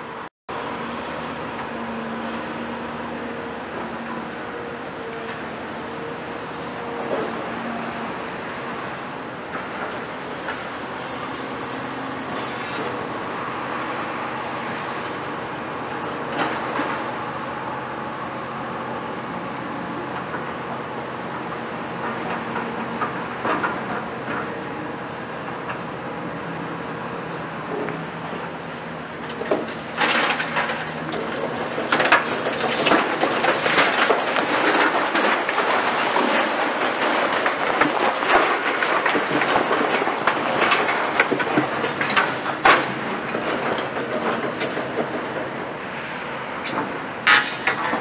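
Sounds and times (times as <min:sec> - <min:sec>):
masonry cracking: 0:29.2 - 0:45.2
brick wall crashing and crumbling: 0:29.6 - 0:44.6.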